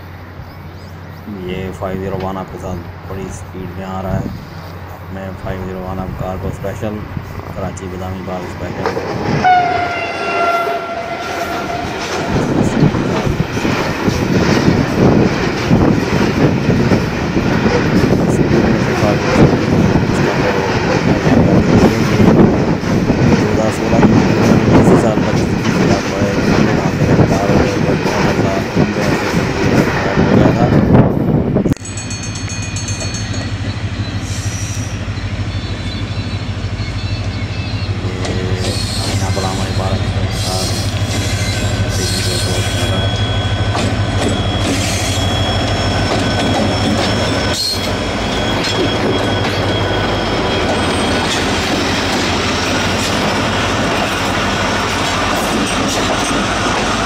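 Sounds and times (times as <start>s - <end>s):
diesel locomotive engine throbbing: 0.0s - 57.0s
train wheels rumbling: 0.0s - 57.0s
locomotive horn: 9.3s - 12.6s.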